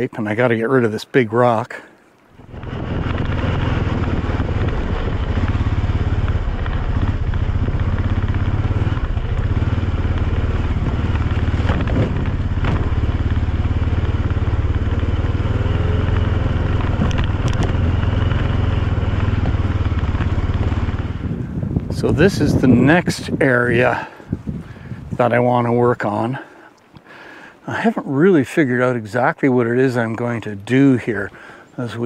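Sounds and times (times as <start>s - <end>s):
atv engine running: 2.4s - 25.0s.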